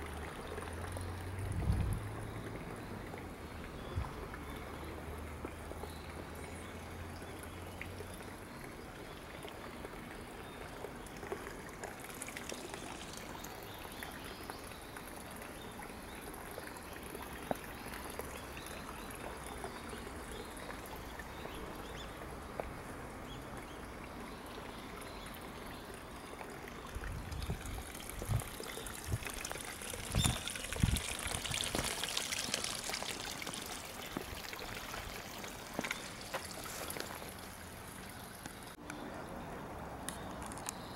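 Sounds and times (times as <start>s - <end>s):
water pouring into stone pool: 0.0s - 38.8s.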